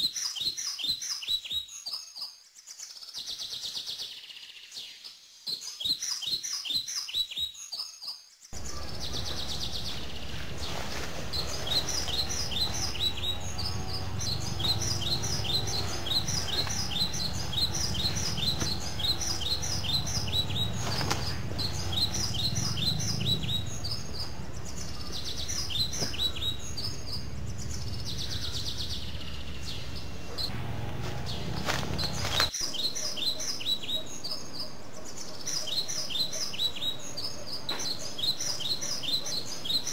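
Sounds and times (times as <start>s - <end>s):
small birds chirping: 0.0s - 39.9s
low steady rumble: 8.6s - 32.5s.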